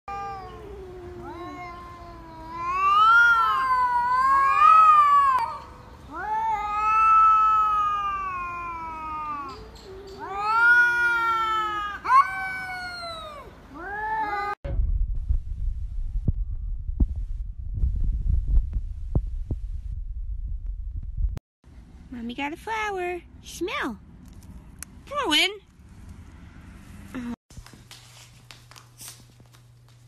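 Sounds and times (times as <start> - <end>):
cats yowling: 0.1 - 14.6.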